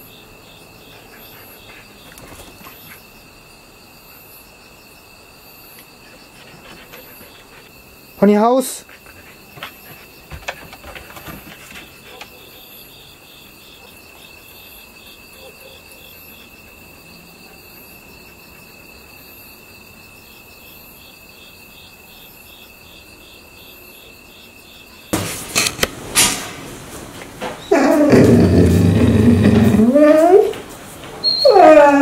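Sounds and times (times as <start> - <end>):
crickets chirping: 0.0 - 32.0.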